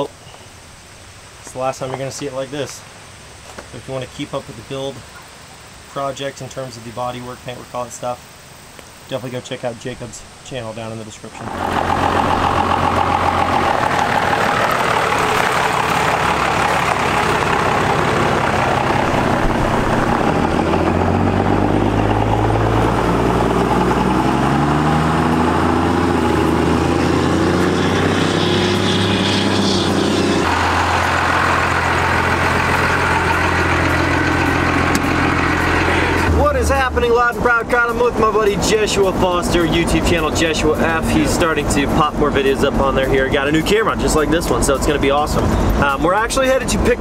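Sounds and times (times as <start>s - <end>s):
diesel pickup engine: 11.3s - 47.0s
another engine running steadily: 11.4s - 47.0s.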